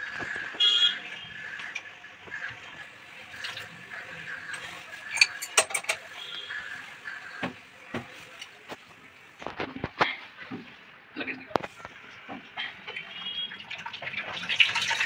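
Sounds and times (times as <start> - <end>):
metal wrench clinking on valve: 5.1 - 6.0.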